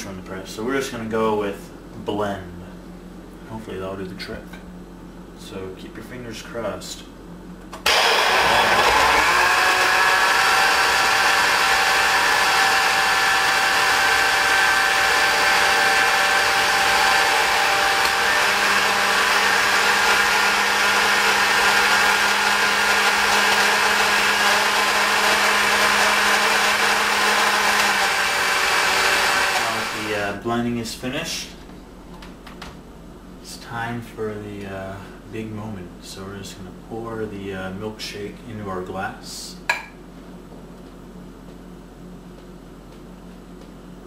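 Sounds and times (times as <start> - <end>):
blender motor whirring: 7.8 - 30.2.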